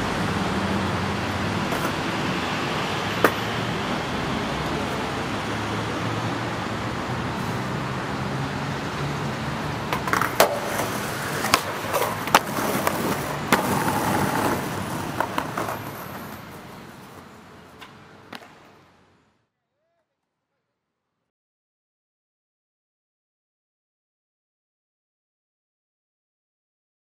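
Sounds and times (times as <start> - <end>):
street traffic rumble: 0.0 - 19.4
skateboard clacks: 3.2 - 3.5, 9.8 - 18.8
skateboard grinding on metal rail: 9.9 - 17.2.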